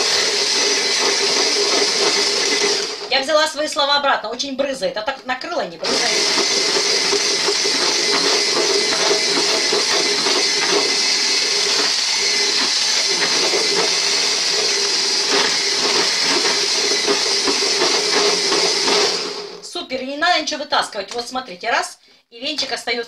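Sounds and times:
electric blender whisking: 0.0s - 3.6s, 5.8s - 19.7s.

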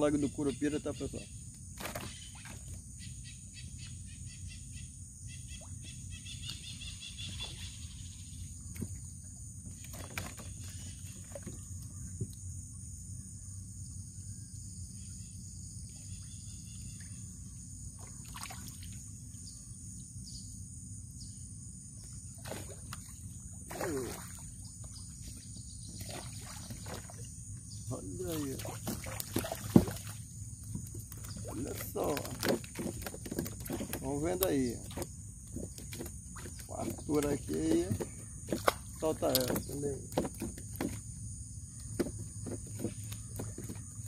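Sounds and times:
high insect drone: 0.0s - 44.0s
bird chirps: 2.0s - 8.7s.

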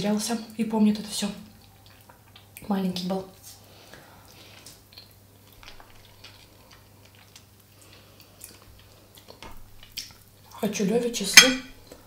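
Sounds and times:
person chewing food: 1.6s - 2.6s, 3.6s - 10.5s.

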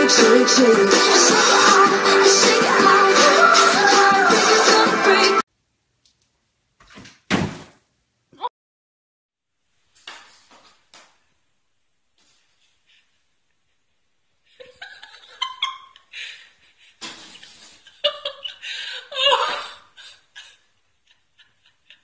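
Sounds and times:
people laughing: 14.4s - 22.0s.

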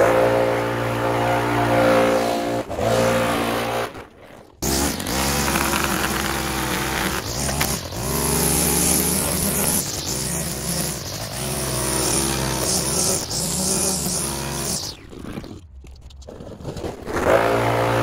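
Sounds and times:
small gas engine revving: 0.0s - 15.6s, 17.2s - 18.0s.

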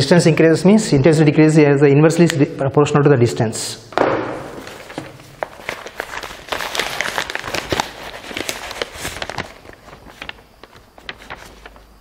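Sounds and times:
paper rustling and crinkling: 4.4s - 12.0s.

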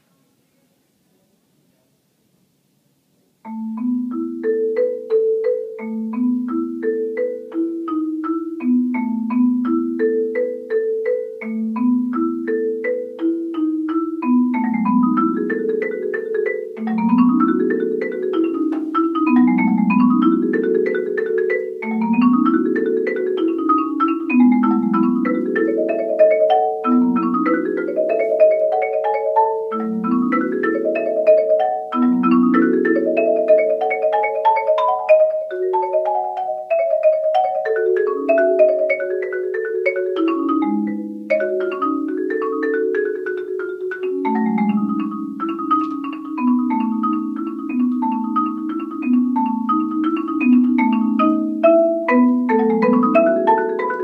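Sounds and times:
solo marimba: 3.4s - 54.0s.

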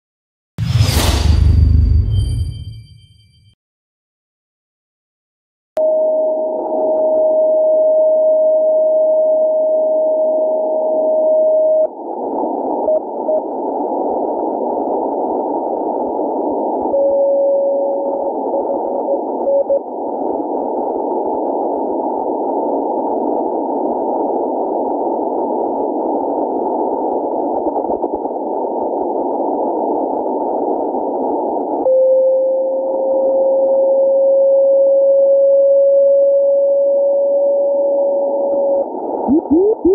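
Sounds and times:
morse code beeps: 39.3s - 39.9s.

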